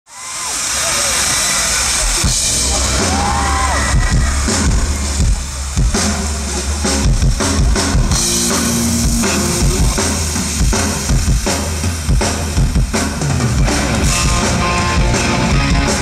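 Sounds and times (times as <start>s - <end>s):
live rock band playing: 1.2s - 16.0s
drum kit: 1.8s - 16.0s
bass guitar: 2.1s - 16.0s.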